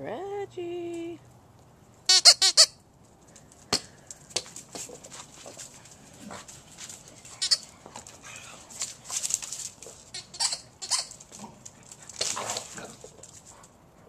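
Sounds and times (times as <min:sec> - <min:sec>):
squeaky toy squeak: 0:02.1 - 0:02.8, 0:07.4 - 0:07.7, 0:10.1 - 0:11.2
dogs snuffling: 0:03.3 - 0:13.8.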